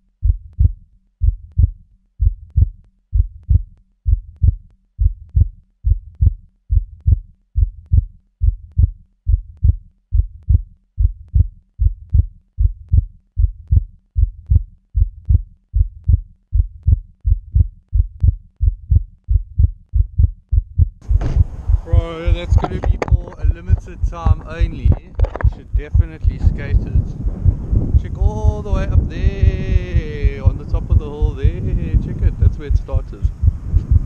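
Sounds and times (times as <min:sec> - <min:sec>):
heartbeat thumps: 0:00.2 - 0:34.0.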